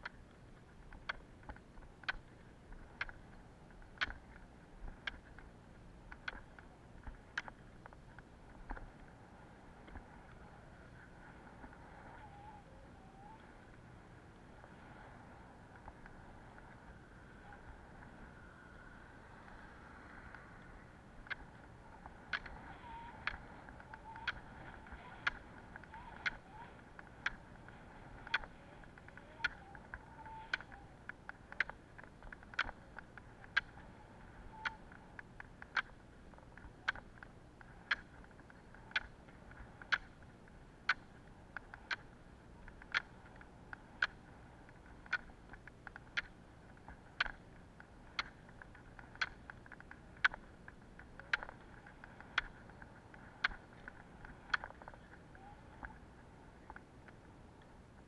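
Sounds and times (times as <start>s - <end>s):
ski poles clicking on asphalt: 0.0s - 58.0s
wheels rolling hiss: 9.0s - 31.5s.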